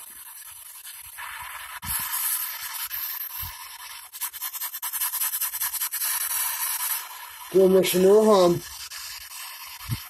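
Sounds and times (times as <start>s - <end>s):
radio static hiss: 0.0s - 4.2s, 5.9s - 10.0s
choppy radio stutter: 6.8s - 10.0s.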